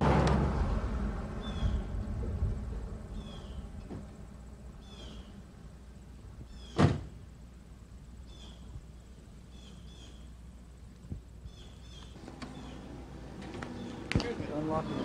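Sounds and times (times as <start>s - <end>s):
low outdoor rumble: 0.0s - 15.0s
bird chirping: 1.4s - 2.0s, 3.1s - 3.8s, 4.8s - 5.5s, 6.4s - 6.8s, 8.2s - 10.4s, 11.4s - 15.0s
loud thump: 6.7s - 7.2s.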